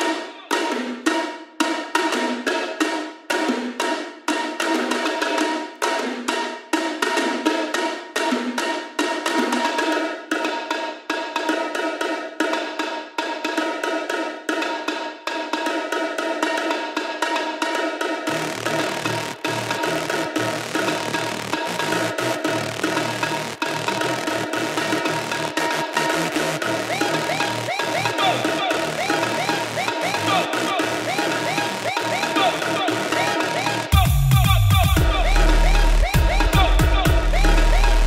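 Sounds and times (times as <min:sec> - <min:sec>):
clicky electronic percussion: 0:18.3 - 0:38.0
deep bass: 0:18.3 - 0:38.0
held synth tones: 0:18.3 - 0:38.0.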